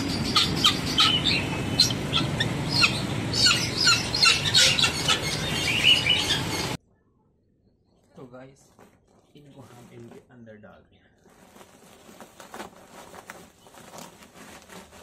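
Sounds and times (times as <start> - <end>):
small birds chirping: 0.0 - 6.8, 9.2 - 12.1.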